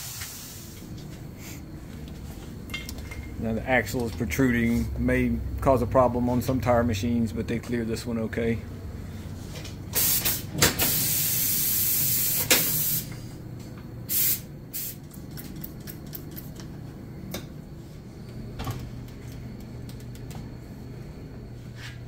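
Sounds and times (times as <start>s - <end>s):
loud spray hiss: 0.0s - 0.7s, 10.0s - 13.1s, 14.1s - 15.0s.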